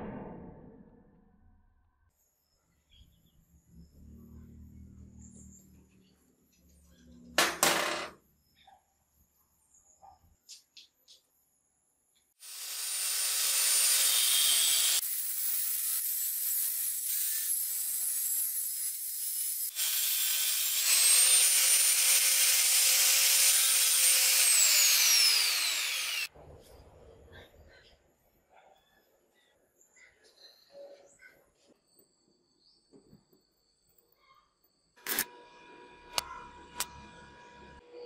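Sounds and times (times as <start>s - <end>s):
angle grinder cutting metal: 12.4s - 26.3s, 35.0s - 37.8s.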